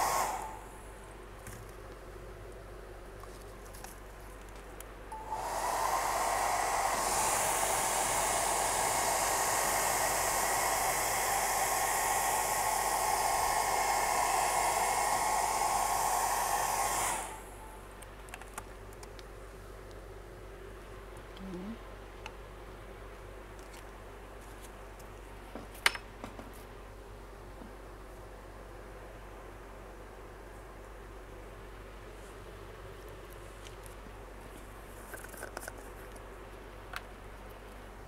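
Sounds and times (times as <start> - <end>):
hot-air blower rushing air: 0.0 - 1.1, 5.1 - 17.8
faint steady hum: 0.0 - 38.0.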